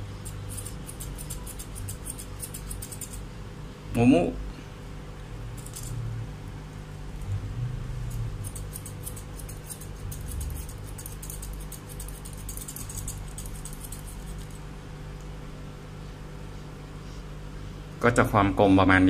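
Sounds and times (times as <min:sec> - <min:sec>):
scissors snipping fur: 0:00.2 - 0:03.2, 0:05.6 - 0:05.9, 0:08.1 - 0:14.6.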